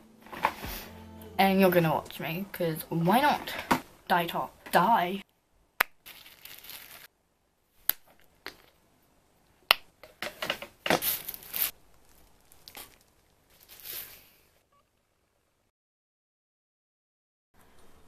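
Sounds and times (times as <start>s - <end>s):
plastic gloves crinkling: 6.0s - 7.1s, 10.8s - 14.5s.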